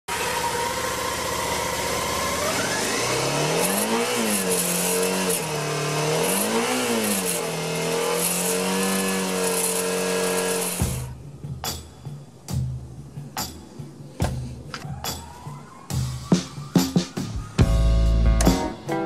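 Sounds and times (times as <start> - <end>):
motorcycle engine revving: 0.1 - 11.2.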